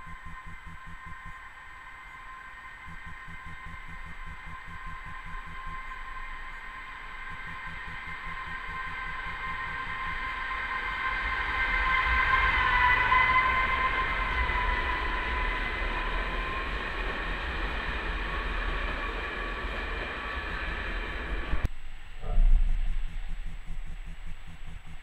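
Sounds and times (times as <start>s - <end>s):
diesel railcar passing: 5.7s - 21.7s.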